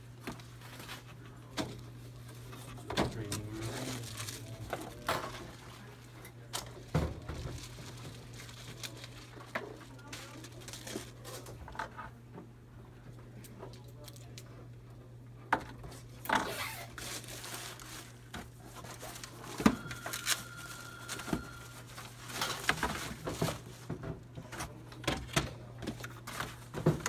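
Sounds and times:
packaging crinkling: 0:03.2 - 0:05.7, 0:07.2 - 0:11.5, 0:16.8 - 0:23.8.

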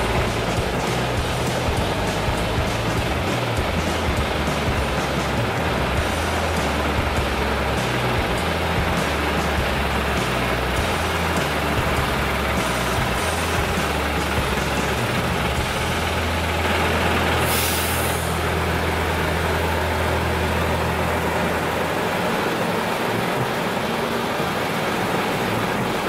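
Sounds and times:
diesel truck idling: 0:00.0 - 0:26.0
air release hiss: 0:16.1 - 0:19.9.

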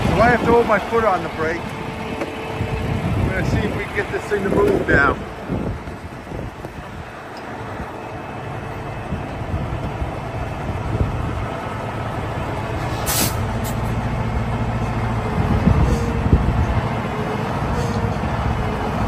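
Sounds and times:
diesel engine running: 0:00.0 - 0:19.0
sharp hiss of released air: 0:12.8 - 0:13.8.

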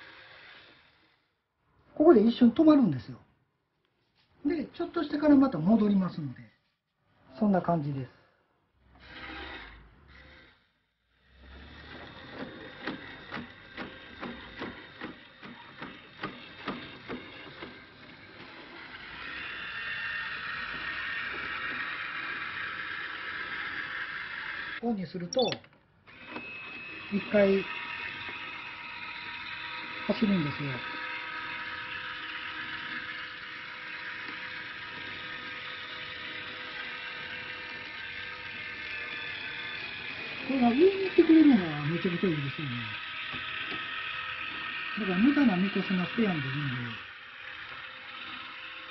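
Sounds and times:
motor whirring: 0:00.0 - 0:01.4, 0:08.9 - 0:24.8, 0:25.4 - 0:48.9
regular mechanical clicks: 0:11.3 - 0:19.4.

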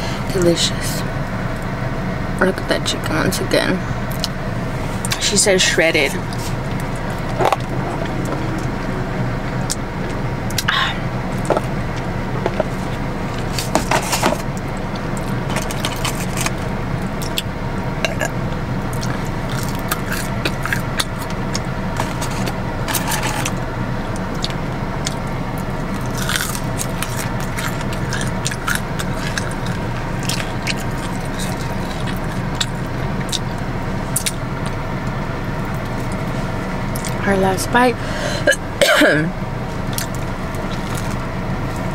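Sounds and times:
low car hum: 0:00.0 - 0:41.9
crunchy chewing: 0:18.9 - 0:34.8, 0:39.8 - 0:41.9.

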